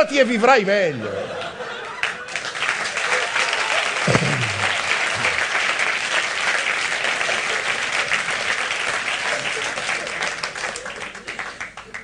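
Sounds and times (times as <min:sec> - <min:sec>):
audience applauding: 0:01.9 - 0:12.0
short low voice: 0:04.1 - 0:05.4.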